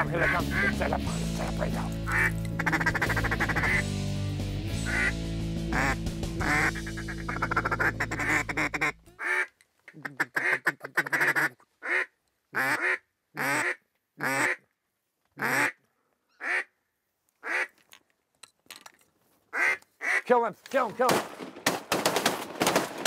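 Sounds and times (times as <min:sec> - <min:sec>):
duck call quacks: 0:00.0 - 0:01.0, 0:02.0 - 0:03.9, 0:04.8 - 0:14.6, 0:15.4 - 0:15.8, 0:16.4 - 0:16.7, 0:17.4 - 0:17.7, 0:19.6 - 0:20.3.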